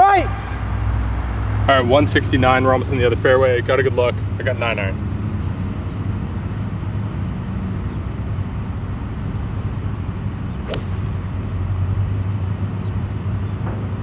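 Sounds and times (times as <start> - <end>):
steady low hum: 4.2 - 14.0
golf club striking ball: 10.6 - 11.7.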